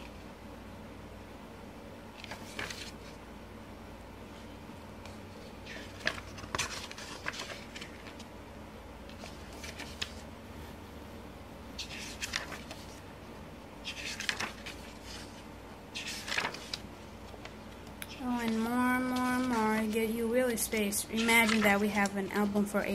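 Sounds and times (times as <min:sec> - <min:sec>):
paper pages turning: 0:02.1 - 0:03.2, 0:05.0 - 0:08.3, 0:09.0 - 0:10.3, 0:11.8 - 0:13.0, 0:13.8 - 0:22.6.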